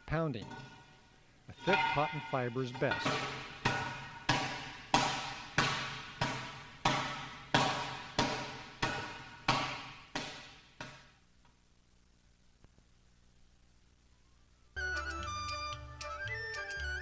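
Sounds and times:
palm slaps on training bag: 3.1 - 11.0.

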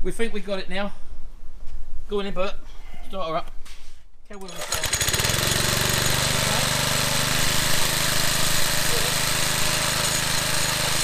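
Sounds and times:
lawnmower petrol engine running: 4.4 - 11.0.

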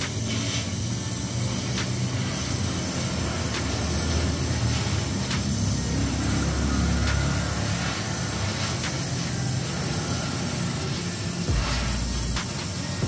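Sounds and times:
welding torch hissing: 0.0 - 13.0
low hum: 11.5 - 12.5.

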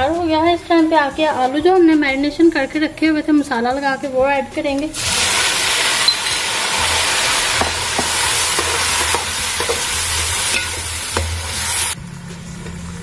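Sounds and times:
potatoes sizzling in hot oil: 4.9 - 12.0.

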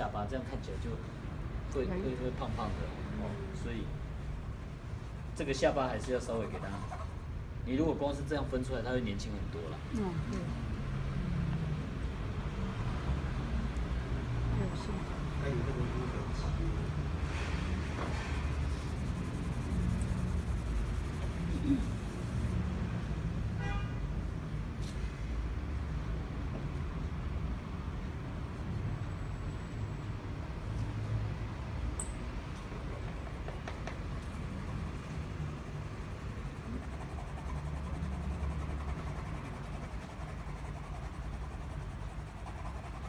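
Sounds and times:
low background hum: 34.1 - 43.0.

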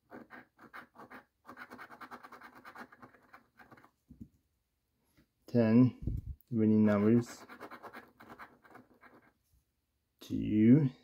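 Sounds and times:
coin scraping a lottery ticket: 0.1 - 3.9, 7.0 - 9.3.

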